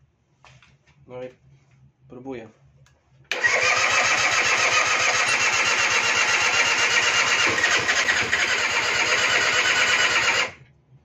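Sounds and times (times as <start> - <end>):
electric starter cranking engine: 3.3 - 10.6.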